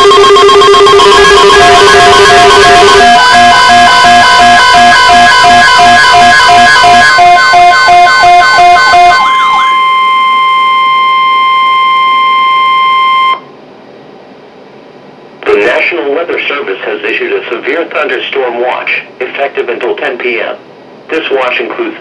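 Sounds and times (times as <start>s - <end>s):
falling electronic sweep: 0.0s - 13.4s
rapidly pulsing beeps: 0.0s - 13.4s
steady warning alarm tone: 0.0s - 13.5s
faint radio hiss: 13.7s - 22.0s.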